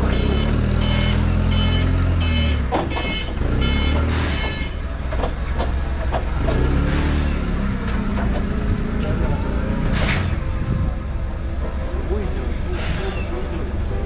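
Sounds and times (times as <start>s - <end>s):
forklift engine running: 0.0s - 14.0s
clunks and knocks: 2.4s - 10.9s.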